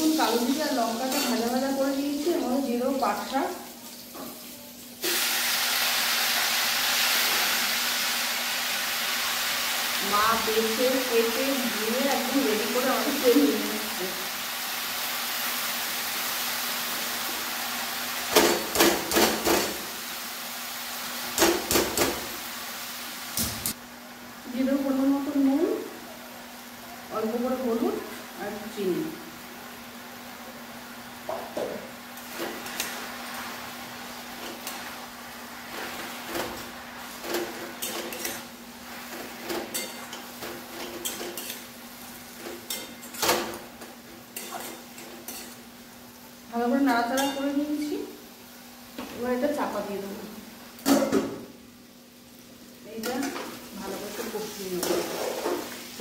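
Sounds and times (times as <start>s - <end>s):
leaves sizzling in hot oil: 0.0s - 56.0s
utensils knocking against pan: 18.3s - 19.8s
metal spatula scraping a wok: 54.2s - 55.8s.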